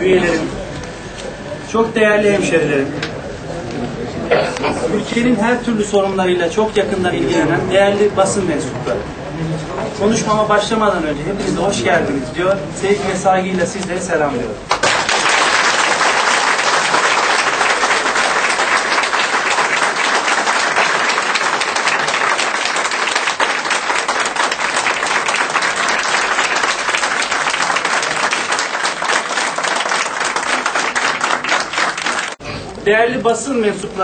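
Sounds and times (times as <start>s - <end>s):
crowd applauding: 14.7s - 32.4s.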